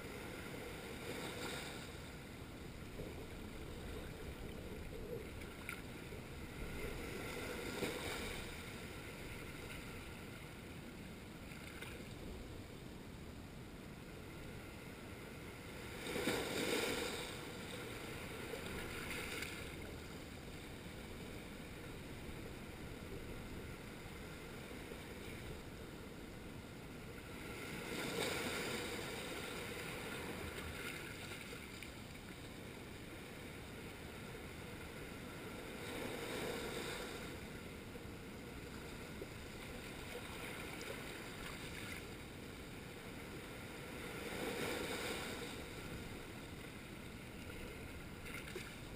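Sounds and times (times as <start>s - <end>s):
sea waves washing over rocks: 15.7s - 20.0s, 43.0s - 48.9s.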